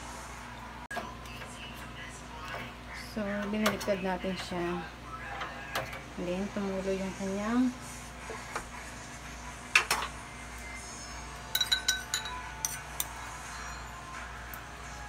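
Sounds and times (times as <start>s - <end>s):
metal utensils clinking on oven rack: 11.5s - 14.0s.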